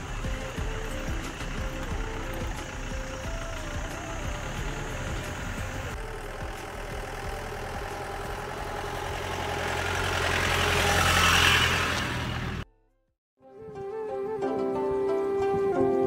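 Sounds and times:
jeep engine passing by: 0:00.0 - 0:12.7.

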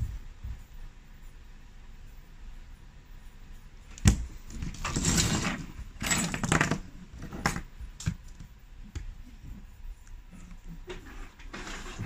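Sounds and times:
tablet scraping and rustling: 0:04.5 - 0:07.7, 0:10.8 - 0:12.0.

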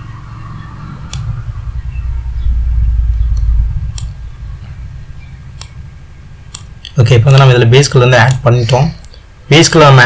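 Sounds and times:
low rumble: 0:00.2 - 0:07.9.

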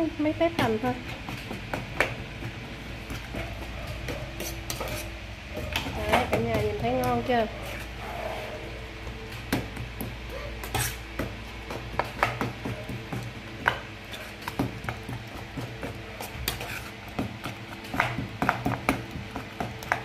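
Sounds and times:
spoon clinking and scraping metal bowl: 0:04.4 - 0:05.9, 0:10.6 - 0:11.0, 0:16.1 - 0:17.0.

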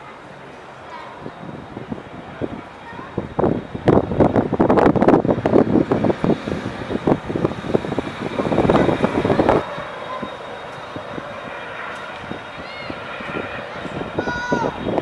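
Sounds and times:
wind noise on microphone: 0:01.1 - 0:15.0
boat engines running: 0:02.6 - 0:15.0.

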